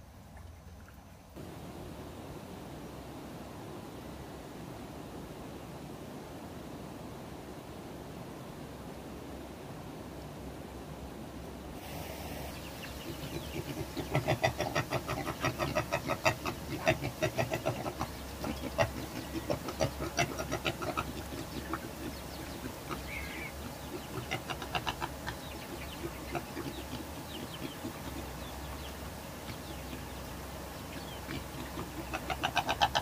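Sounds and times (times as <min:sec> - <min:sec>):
piglets smacking and chewing: 0:13.3 - 0:28.5.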